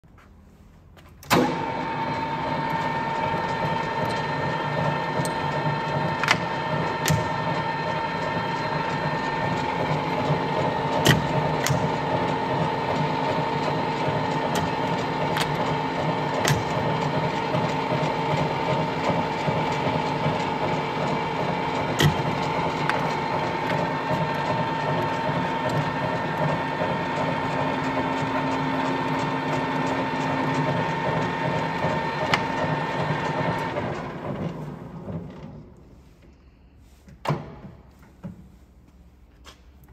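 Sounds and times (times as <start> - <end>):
metal lathe running with whine: 1.6 - 34.4.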